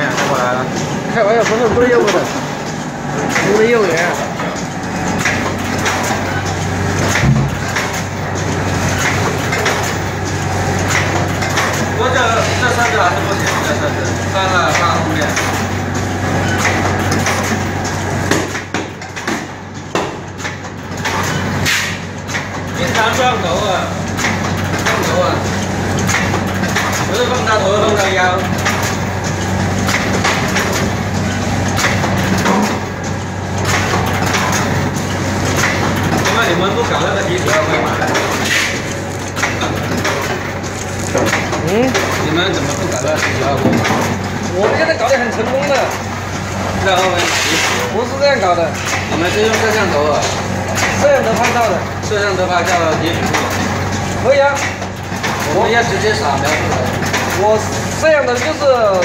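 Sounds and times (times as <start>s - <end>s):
mechanical clatter: 0.0s - 59.0s
packaging machine motor hum: 0.0s - 59.0s
heavy machine thump: 7.0s - 7.9s.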